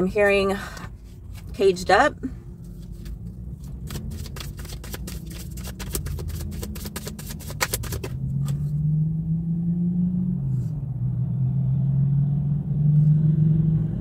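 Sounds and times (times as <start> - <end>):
low steady hum: 0.0 - 9.5
cards being shuffled: 2.6 - 8.7.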